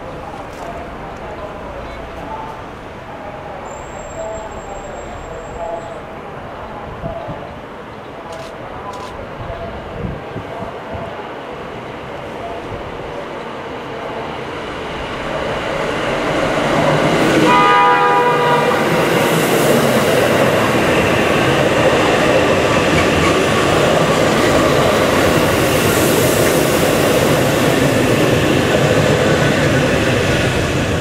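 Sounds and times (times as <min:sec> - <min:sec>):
train running on rails: 0:00.0 - 0:31.0
train horn: 0:17.3 - 0:19.2.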